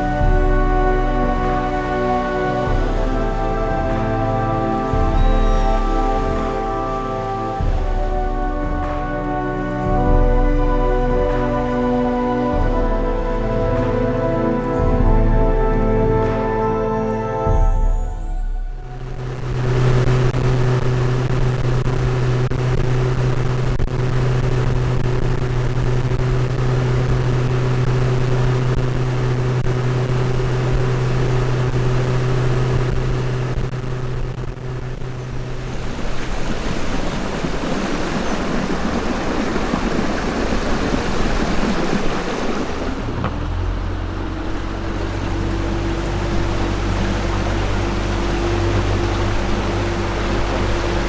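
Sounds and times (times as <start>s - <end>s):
motorboat engine running: 0.0s - 51.0s
water: 0.0s - 51.0s
wind noise: 17.4s - 51.0s.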